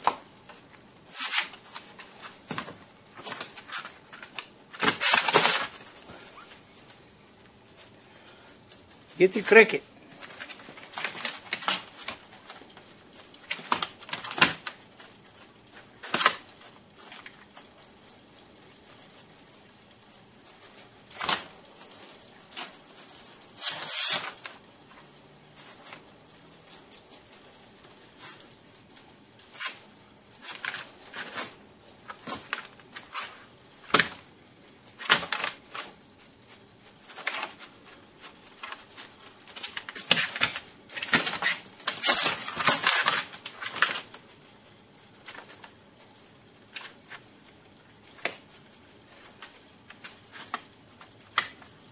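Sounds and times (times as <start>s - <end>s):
skunk scratching in a box: 1.0s - 2.5s, 3.2s - 6.5s, 10.1s - 24.6s, 34.9s - 44.6s.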